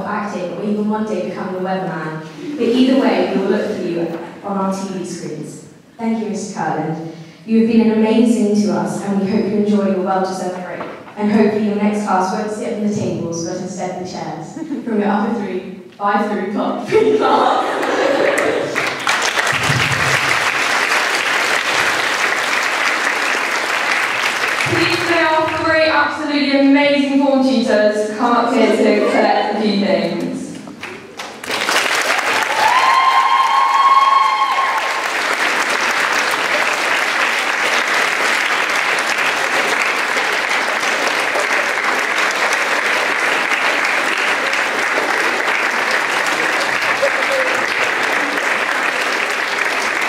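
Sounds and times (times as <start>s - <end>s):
audience applauding: 17.7s - 25.6s, 30.7s - 50.0s.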